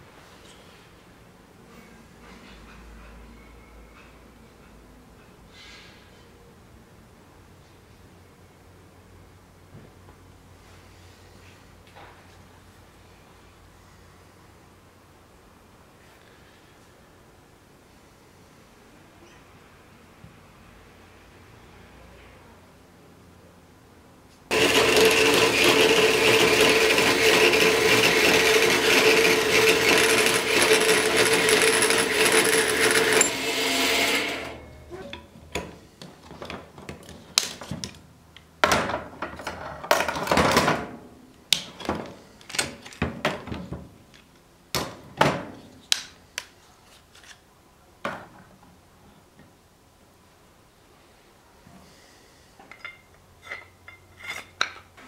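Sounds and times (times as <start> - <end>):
power tool whining: 24.5 - 34.8.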